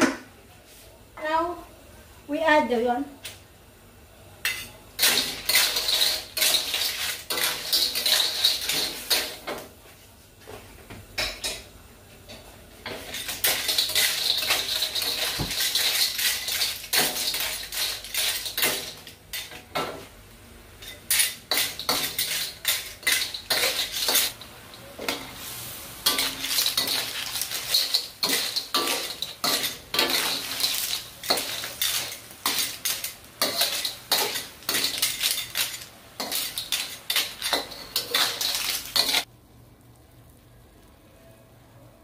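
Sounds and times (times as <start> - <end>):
spatula scraping a wok: 5.0 - 9.5, 12.9 - 19.6, 20.8 - 24.4, 25.0 - 39.3.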